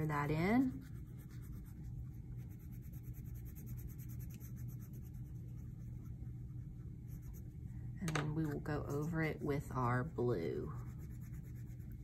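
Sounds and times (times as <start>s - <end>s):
crayon rubbing on paper: 0.0s - 6.2s, 8.8s - 12.0s.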